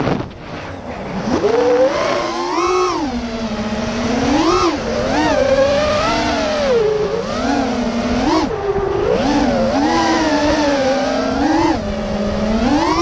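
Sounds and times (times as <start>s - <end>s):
quadcopter motors buzzing whine: 0.0s - 13.0s
wind rumbling on microphone: 0.0s - 13.0s.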